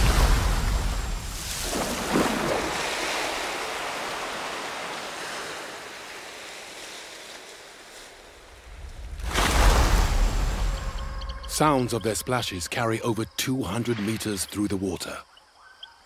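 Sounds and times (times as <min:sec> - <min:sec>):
monkey splashing into river: 0:00.0 - 0:07.9
churning water: 0:00.0 - 0:12.6.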